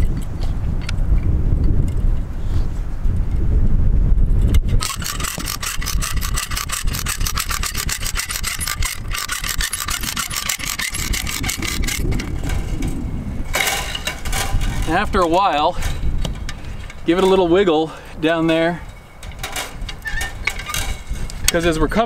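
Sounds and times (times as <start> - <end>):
fence puller ratchet clicking: 4.5 - 17.4, 18.4 - 21.7
low rumble: 11.1 - 17.2.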